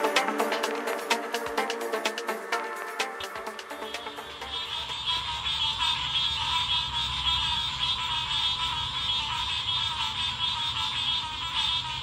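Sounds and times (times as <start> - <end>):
frogs trilling: 3.9 - 12.0.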